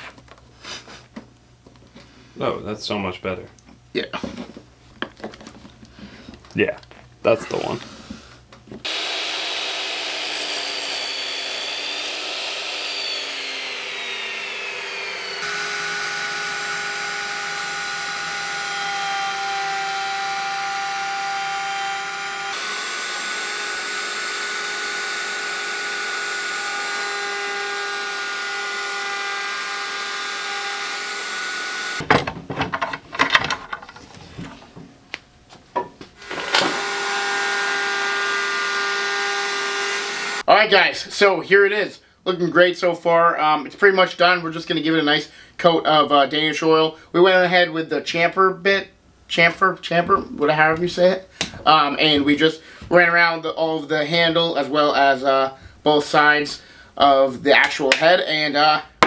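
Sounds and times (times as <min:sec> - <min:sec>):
irregular knocks and handling: 0:03.6 - 0:07.1, 0:32.0 - 0:36.2
wood router high whine: 0:08.8 - 0:32.0, 0:36.2 - 0:40.5.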